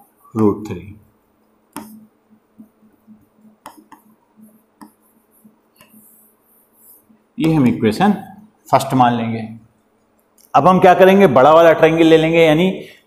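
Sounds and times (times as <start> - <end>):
marker tip tapping board: 1.7 - 2.0, 3.6 - 4.2
marker scuffing on whiteboard: 1.8 - 2.8, 3.4 - 7.8.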